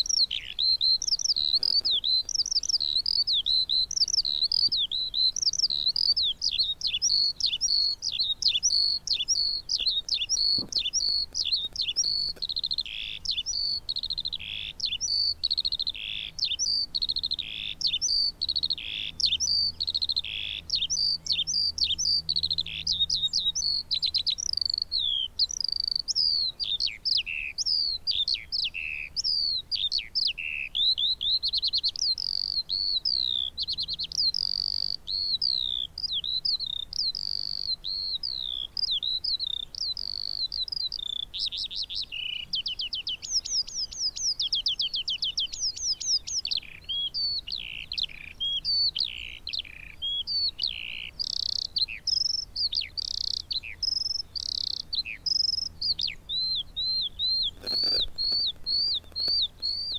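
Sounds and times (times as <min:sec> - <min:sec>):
skylark warbling song: 0:00.0 - 0:59.9.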